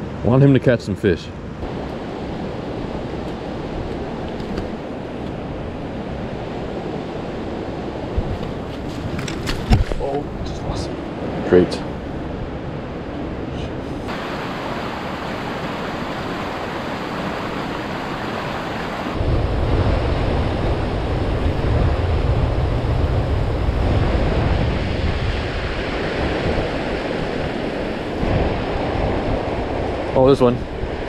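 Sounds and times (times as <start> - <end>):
river rapids rushing over rocks: 14.1 - 19.2.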